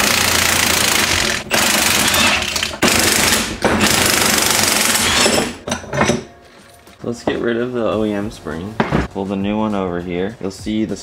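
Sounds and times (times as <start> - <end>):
impact wrench hammering: 0.0 - 6.3.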